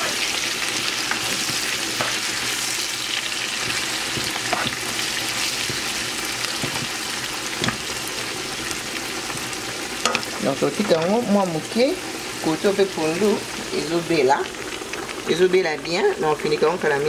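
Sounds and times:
vegetables sizzling in oil: 0.0 - 17.0
wooden spoon scraping a pan: 1.0 - 2.8, 3.4 - 8.0.

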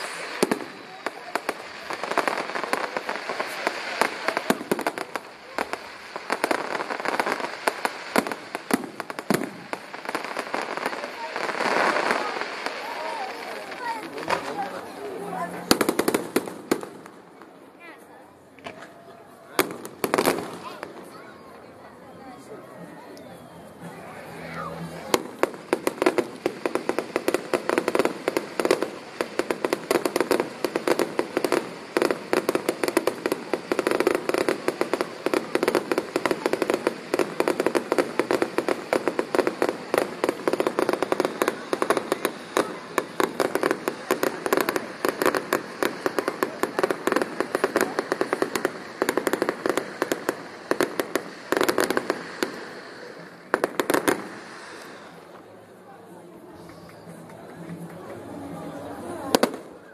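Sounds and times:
fireworks bangs and crackling: 0.0 - 59.9.

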